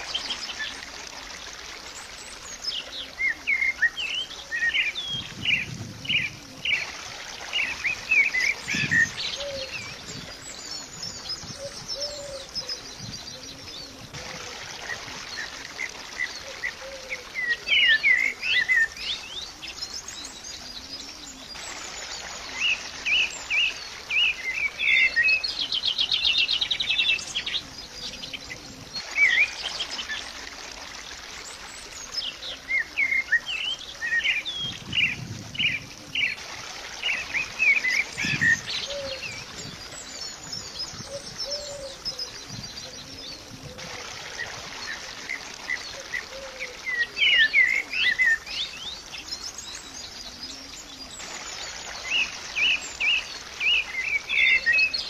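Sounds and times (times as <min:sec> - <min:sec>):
faint steady hiss: 0:00.0 - 0:55.0
small birds chirping: 0:31.8 - 0:55.0.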